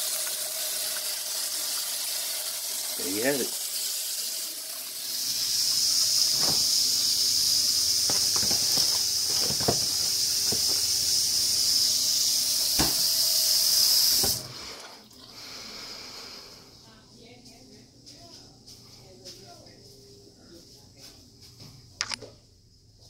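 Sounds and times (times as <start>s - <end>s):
tap running into metal sink: 6.2s - 6.8s, 8.0s - 11.0s, 12.7s - 13.1s, 14.2s - 14.4s
knocks and clunks: 8.1s - 10.8s.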